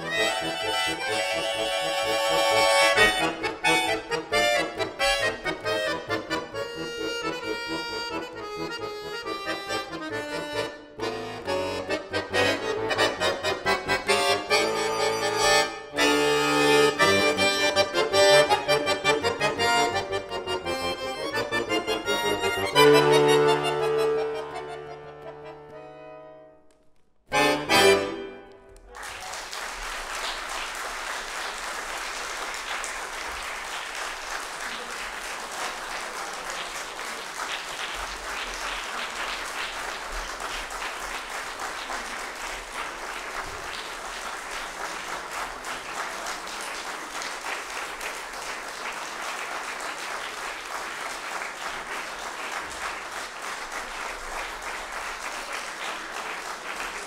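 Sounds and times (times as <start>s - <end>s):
accordion chords: 0.0s - 28.9s
audience applauding: 28.4s - 57.0s.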